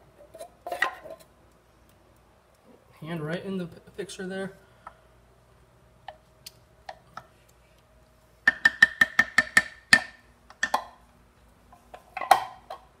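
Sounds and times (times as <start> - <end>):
wooden spoon tapping crockpot rim: 8.5 - 10.9.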